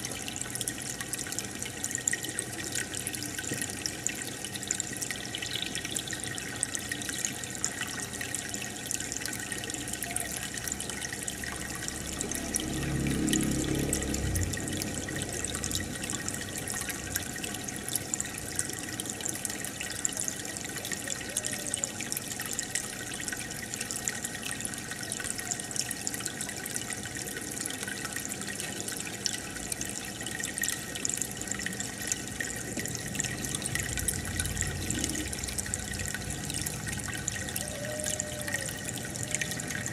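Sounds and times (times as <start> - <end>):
aquarium water bubbling: 0.0 - 39.9
low hum: 11.2 - 18.5, 32.6 - 37.8
air bubbles crackling: 31.4 - 37.8.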